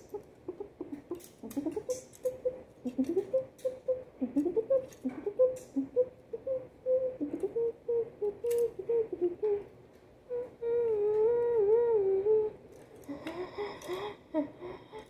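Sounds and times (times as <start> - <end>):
person humming: 0.0 - 9.7, 10.3 - 15.0
plastic toy parts clicking: 8.5 - 8.7.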